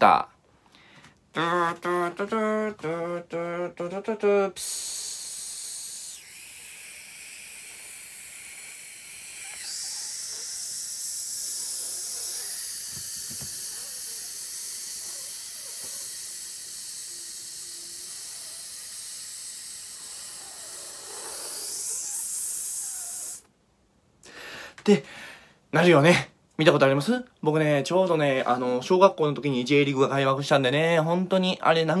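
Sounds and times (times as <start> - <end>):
man making hissing sound: 2.8 - 23.5.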